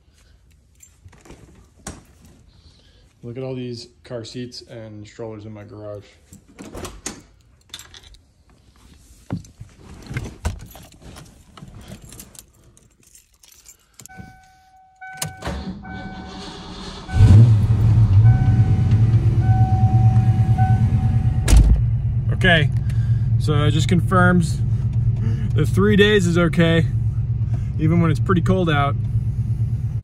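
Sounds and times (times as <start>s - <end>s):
keys jangling: 0.4s - 1.4s, 6.3s - 8.2s, 10.0s - 15.4s
car warning chime beeping: 14.1s - 21.5s
car engine idling loudly: 17.2s - 30.0s.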